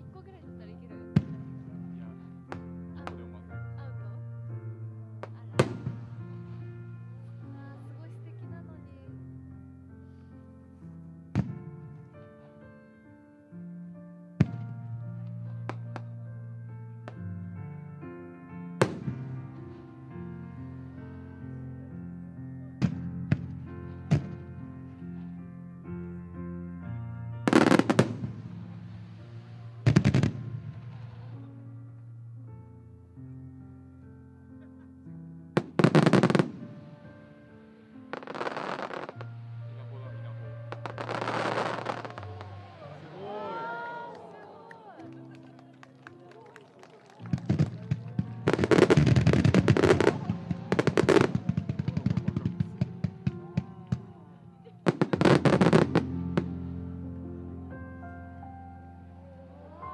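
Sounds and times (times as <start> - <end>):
slow music with held notes: 0.0 - 59.9
fireworks bangs: 27.5 - 28.5, 35.6 - 36.9, 40.7 - 43.0, 47.2 - 54.0, 54.8 - 56.7.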